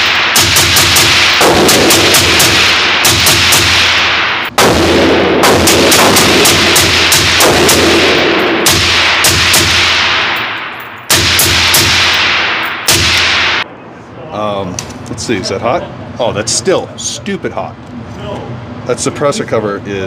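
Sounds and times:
suppressed rifle shots echoing: 0.0 - 13.6.

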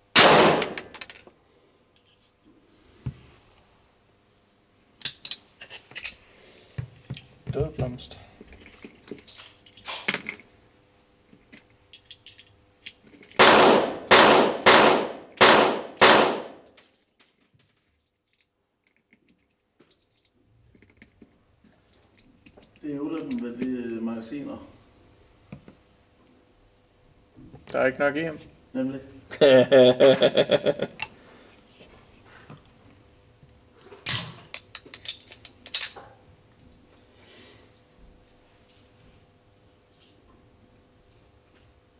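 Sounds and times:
pistol shots with echo: 0.1 - 0.9, 13.4 - 16.6.

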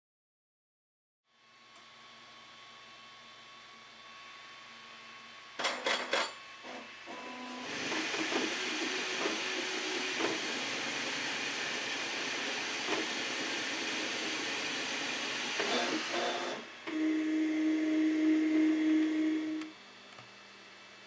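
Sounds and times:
cooling fans hissing: 6.4 - 21.0
low motor whine: 6.5 - 21.0
stepper motor tones: 7.1 - 19.8.

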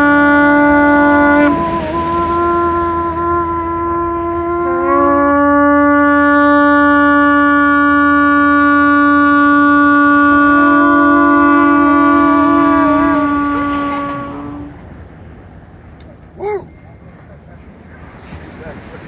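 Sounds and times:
shofar held notes: 0.0 - 15.0
horn wavering note: 0.0 - 15.2.

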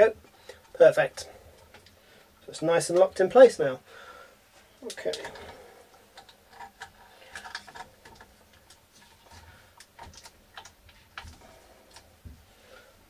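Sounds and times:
plastic connectors clicking: 6.2 - 8.8.

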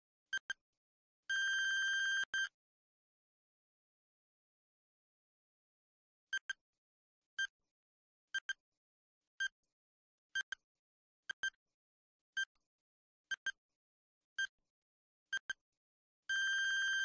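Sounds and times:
electronic timer beeps: 1.3 - 2.6, 6.3 - 6.6, 8.4 - 8.6, 16.3 - 17.0.

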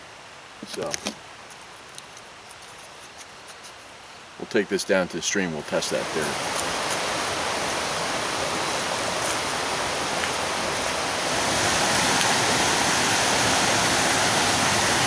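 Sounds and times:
stream flowing over rocks: 3.8 - 15.0.

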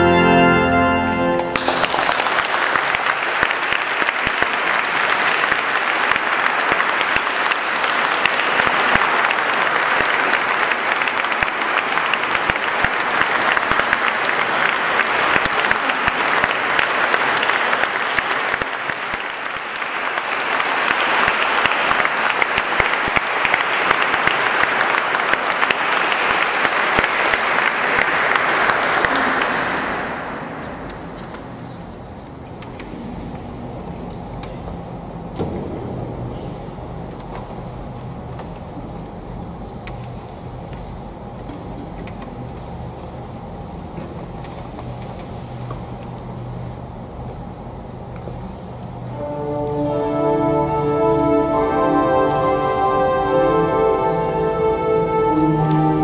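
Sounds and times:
audience applauding: 1.4 - 31.8, 49.1 - 56.0.

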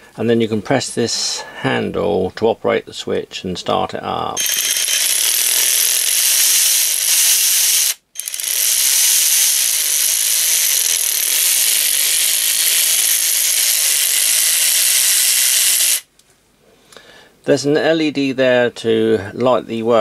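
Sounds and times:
electric ratchet wrench whirring: 4.4 - 16.1.

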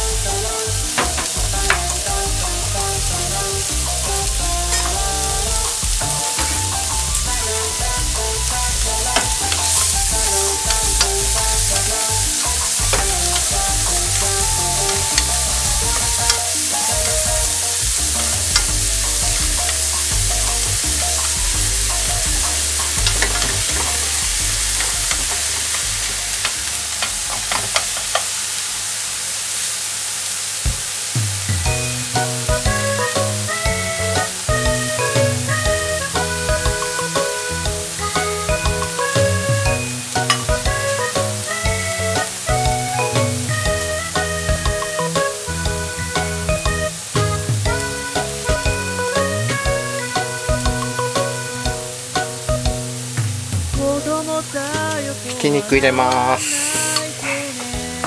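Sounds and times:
light background music: 0.0 - 28.2, 31.6 - 58.0
onion sizzling in oil: 0.0 - 58.0
chopsticks tapping pan: 0.9 - 2.2, 3.6 - 8.2, 8.9 - 28.3, 34.2 - 41.6, 44.7 - 52.5.

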